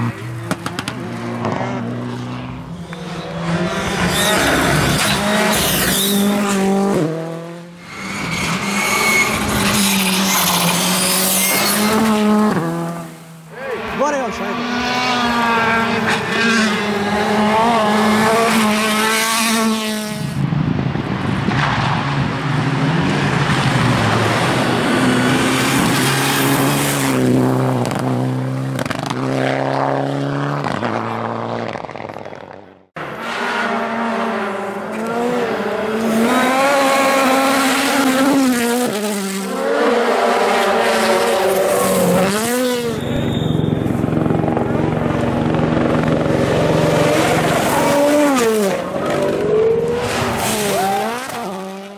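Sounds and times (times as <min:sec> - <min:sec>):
rally cars at full throttle: 0:00.0 - 0:51.9.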